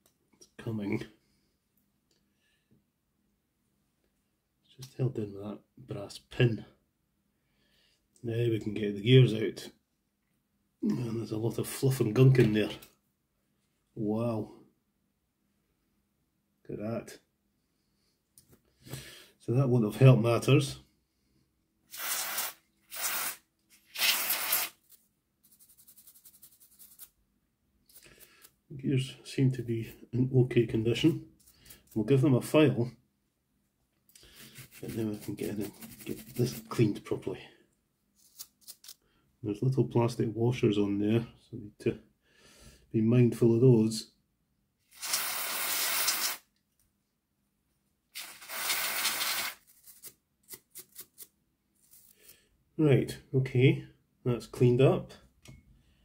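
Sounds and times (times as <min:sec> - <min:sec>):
aerosol can spraying: 0:21.9 - 0:24.8, 0:45.0 - 0:46.4, 0:48.2 - 0:49.6
toothbrush scrubbing: 0:21.9 - 0:24.8, 0:25.5 - 0:27.1, 0:34.2 - 0:36.8, 0:44.9 - 0:46.4, 0:48.2 - 0:51.3.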